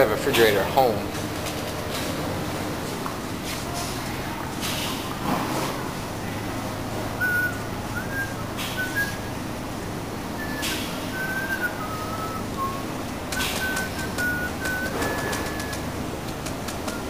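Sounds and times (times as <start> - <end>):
steady low hum: 0.0 - 17.0
person whistling short notes: 7.2 - 9.3, 10.4 - 15.9.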